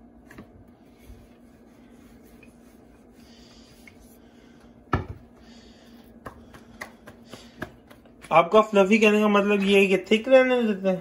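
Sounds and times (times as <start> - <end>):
faint steady hum: 0.0 - 11.0
rolling pin rubbing on dough: 0.7 - 4.5
light taps of dough handling: 6.1 - 8.6.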